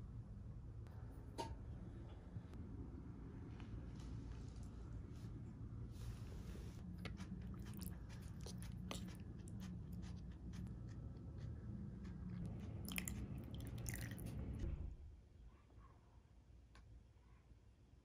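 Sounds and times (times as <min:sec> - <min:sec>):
low room hum: 0:00.0 - 0:18.0
person chewing crunchy food: 0:06.8 - 0:14.4.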